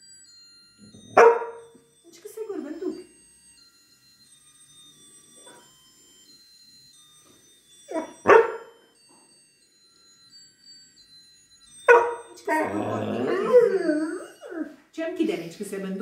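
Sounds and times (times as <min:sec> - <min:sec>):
faint high-pitched tones: 0:00.0 - 0:15.7
young dog barking: 0:01.2 - 0:01.6, 0:08.3 - 0:08.7.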